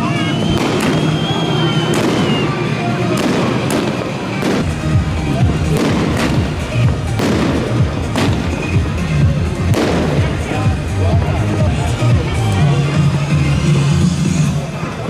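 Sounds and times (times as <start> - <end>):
fireworks banging: 0.0 - 11.4.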